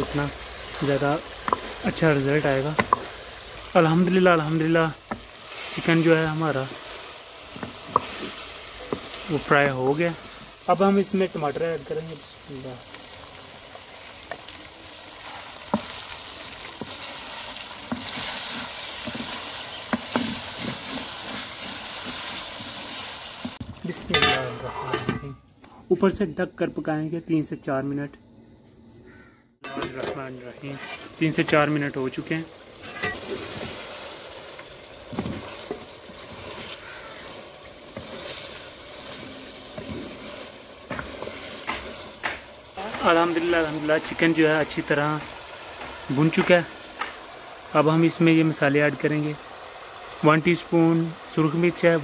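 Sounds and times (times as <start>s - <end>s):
food sizzling in hot oil: 0.0s - 24.4s, 29.7s - 52.0s
wooden spoon scraping pot: 6.7s - 9.3s, 15.2s - 23.6s, 30.6s - 31.3s, 35.1s - 43.2s
spoon scraping a metal pot: 32.8s - 33.3s.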